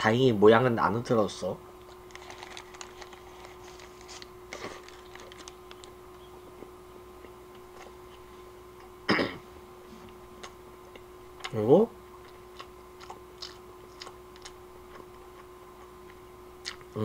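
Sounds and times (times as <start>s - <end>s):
faint hum: 0.0s - 17.0s
chewing: 1.8s - 6.0s, 12.2s - 16.9s
paper wrapper crackling: 1.9s - 6.0s
paper rustle: 2.1s - 5.9s.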